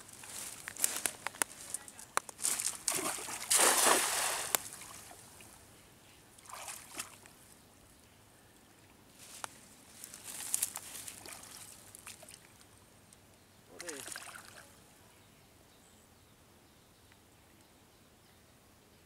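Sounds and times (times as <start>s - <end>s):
cast net splashing on water: 2.4s - 5.2s, 6.4s - 7.2s, 13.8s - 14.6s
water sloshing and trickling: 2.4s - 5.6s, 6.4s - 7.3s, 10.0s - 12.7s, 13.8s - 14.8s.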